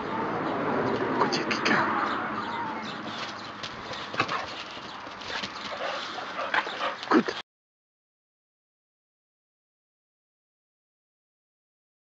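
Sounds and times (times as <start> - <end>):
paws crunching on gravel: 2.8 - 7.4
dog paws scratching on wall: 2.9 - 7.4.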